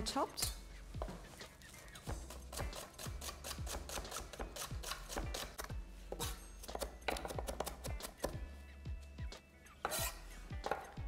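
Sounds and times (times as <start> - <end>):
knife chopping on wooden board: 6.2 - 8.4.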